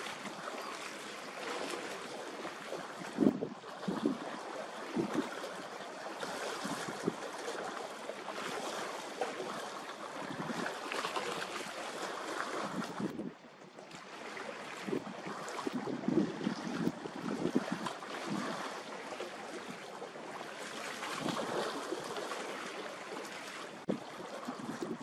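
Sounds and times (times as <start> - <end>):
sea waves washing: 0.0 - 25.0
wind buffeting microphone: 3.0 - 4.2, 6.6 - 7.2, 10.2 - 10.7, 12.6 - 13.4, 14.8 - 18.7, 23.9 - 25.0.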